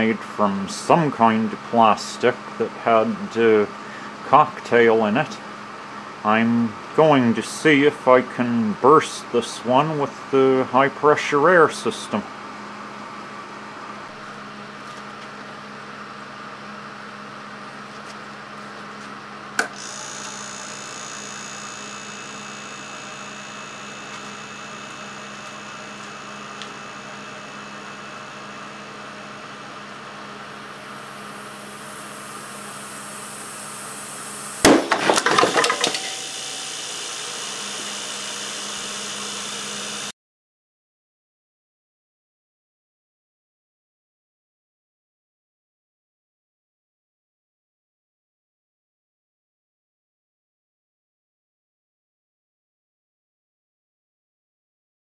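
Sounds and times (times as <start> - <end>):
compressor humming: 0.0 - 40.1
plastic bottle bursting bang: 34.6 - 35.5
clattering: 34.8 - 36.1.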